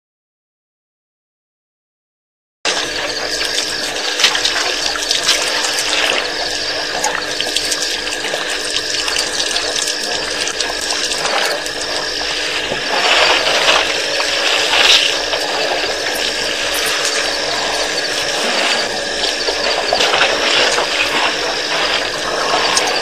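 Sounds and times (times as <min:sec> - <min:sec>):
water sloshing and trickling: 0:02.7 - 0:23.0
steady hiss and hum: 0:03.4 - 0:23.0.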